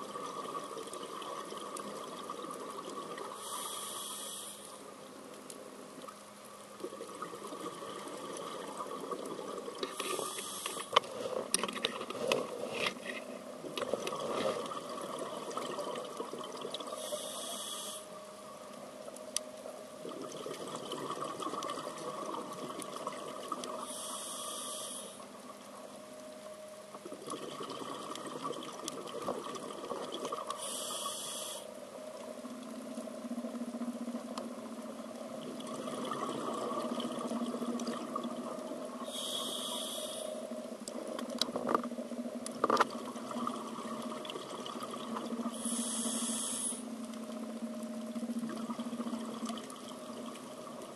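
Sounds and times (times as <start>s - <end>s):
underwater bubbling and crackling: 0.0s - 50.9s
diver breathing through regulator: 3.4s - 4.8s, 9.9s - 11.0s, 17.0s - 18.1s, 23.8s - 25.2s, 30.6s - 31.7s, 39.0s - 40.4s, 45.5s - 46.9s.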